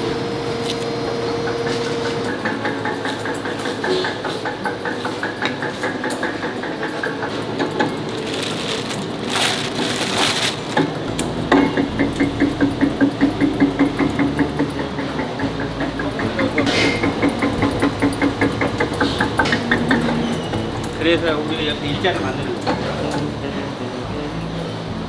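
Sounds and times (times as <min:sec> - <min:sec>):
roller mill rhythmic beat: 0:01.0 - 0:25.0
plastic bag rustling: 0:07.7 - 0:11.0.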